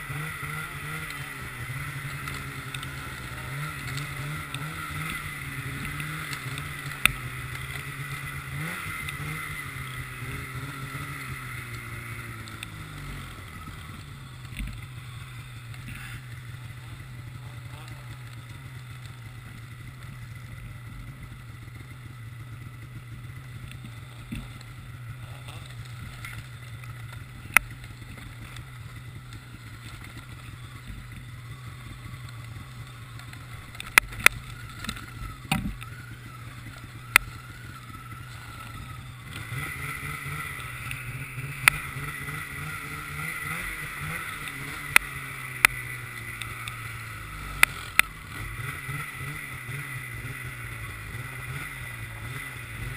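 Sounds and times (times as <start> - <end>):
snowmobile engine running: 0.0 - 52.9
sharp clicks and knocks: 33.2 - 36.0.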